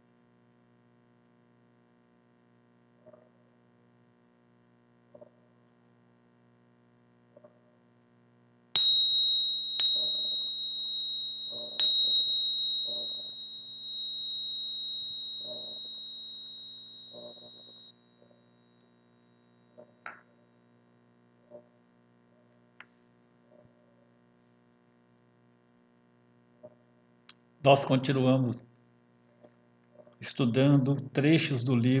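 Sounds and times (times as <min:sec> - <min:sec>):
small meditation bell ringing: 0:08.8 - 0:19.8.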